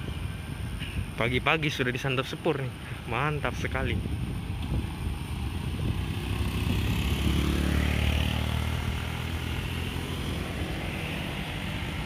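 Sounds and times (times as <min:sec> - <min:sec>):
motorcycles passing on wet road: 0:05.2 - 0:12.0.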